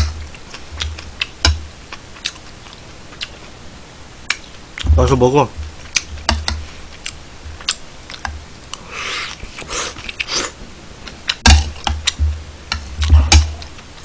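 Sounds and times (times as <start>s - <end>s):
chewing: 0.3s - 3.6s, 6.9s - 11.4s.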